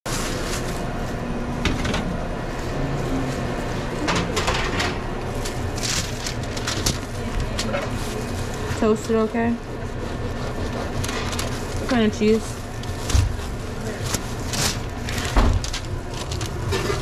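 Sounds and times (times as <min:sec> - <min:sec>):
rustles and clicks handling food wrappers: 0:00.1 - 0:01.3, 0:05.3 - 0:17.0
low background hum: 0:00.1 - 0:17.0.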